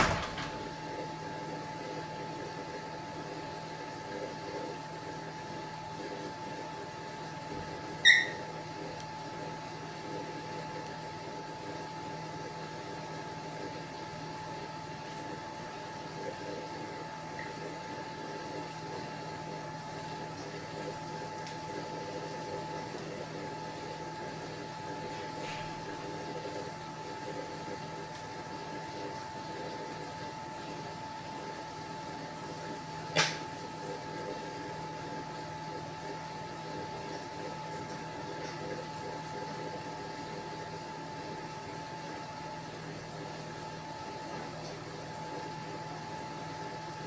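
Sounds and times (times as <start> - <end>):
electrical hum with high tone: 0.0 - 47.0.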